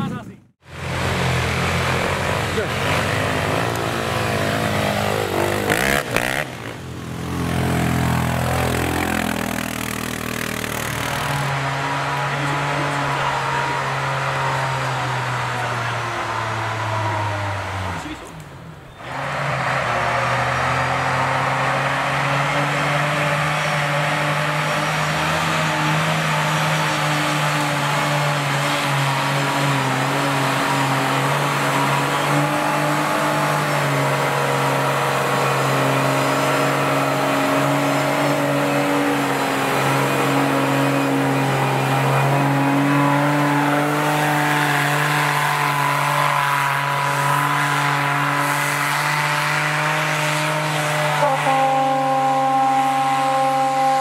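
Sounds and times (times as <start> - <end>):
engine at high revs: 0.0 - 54.0.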